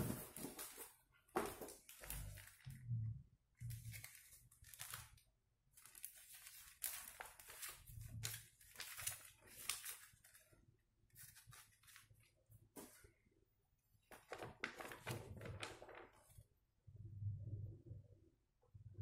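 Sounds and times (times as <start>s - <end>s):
paper rustling: 0.0s - 2.7s, 3.7s - 5.2s, 5.8s - 13.1s, 14.1s - 16.5s.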